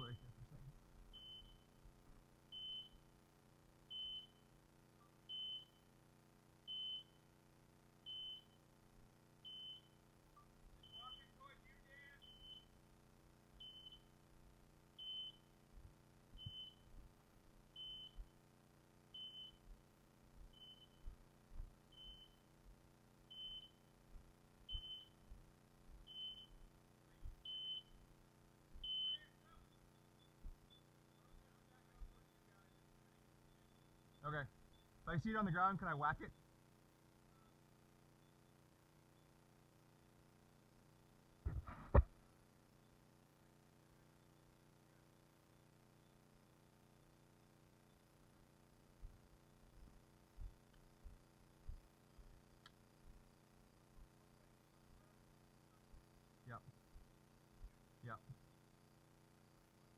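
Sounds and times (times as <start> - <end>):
beeper collar short high beeps: 10.8 - 11.4.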